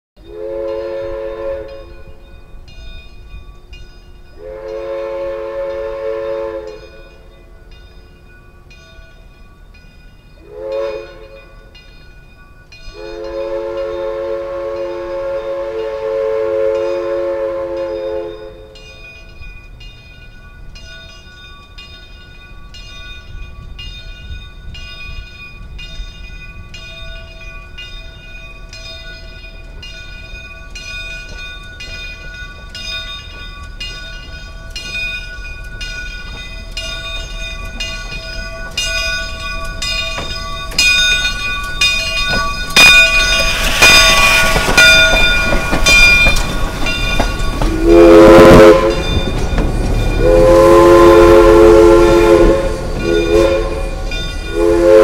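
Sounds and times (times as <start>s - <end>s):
steam locomotive whistle: 0.2s - 2.2s, 4.4s - 7.3s, 10.4s - 11.5s, 12.9s - 18.9s, 47.5s - 55.0s
low rumble of locomotive: 0.2s - 55.0s
bell ringing: 17.9s - 54.9s.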